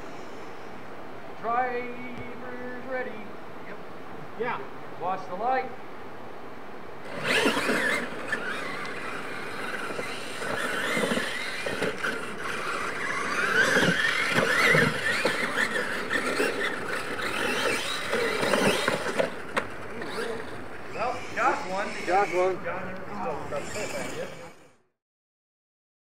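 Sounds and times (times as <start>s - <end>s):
radio-control trucks whining: 7.0s - 24.9s.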